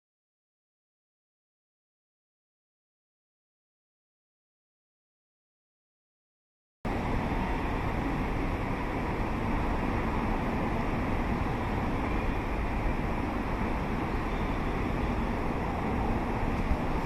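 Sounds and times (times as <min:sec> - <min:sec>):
urban background rumble and hiss: 0:06.9 - 0:17.0.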